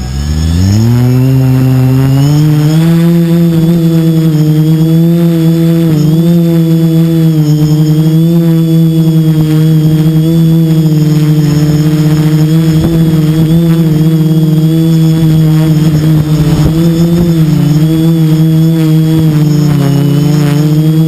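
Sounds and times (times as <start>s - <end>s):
drone motors droning: 0.0s - 21.0s
wind buffeting microphone: 9.8s - 20.9s.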